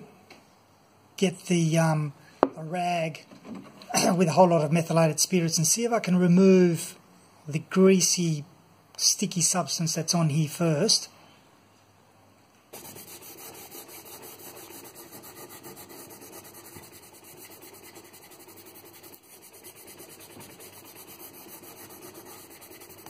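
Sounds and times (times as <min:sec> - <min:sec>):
rag scrubbing wood: 0:12.8 - 0:23.0.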